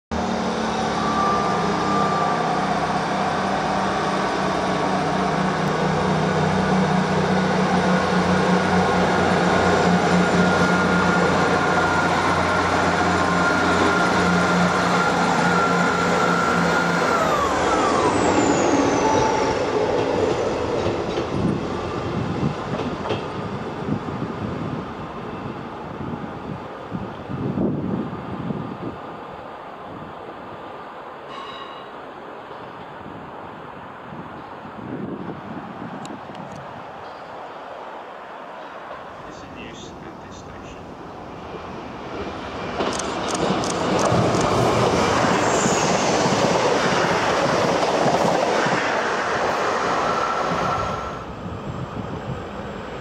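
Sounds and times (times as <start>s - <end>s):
train wheels rumbling: 0.2s - 27.8s, 38.6s - 53.0s
diesel train engines drumming: 39.0s - 49.4s.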